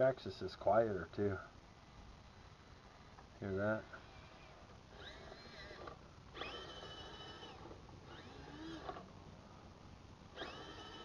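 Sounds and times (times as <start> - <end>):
toy truck drivetrain whining: 4.0 - 9.1, 10.4 - 11.0.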